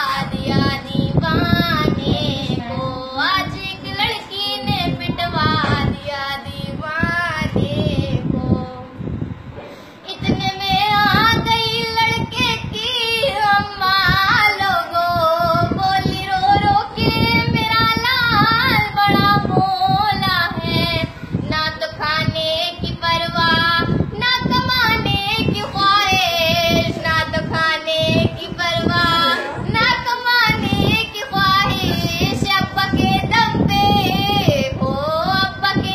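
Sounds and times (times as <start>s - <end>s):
girl singing: 0.0s - 9.2s, 10.0s - 35.9s.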